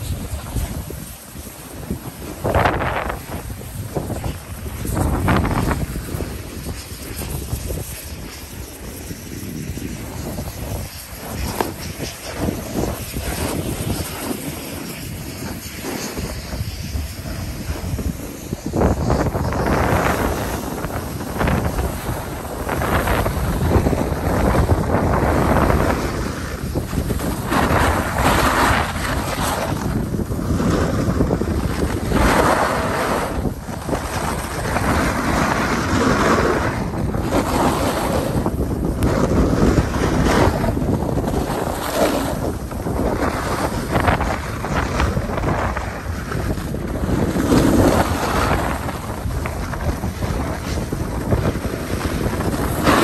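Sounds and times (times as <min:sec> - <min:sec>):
skis sliding over snow: 0:00.0 - 0:53.0
wind buffeting microphone: 0:00.0 - 0:53.0.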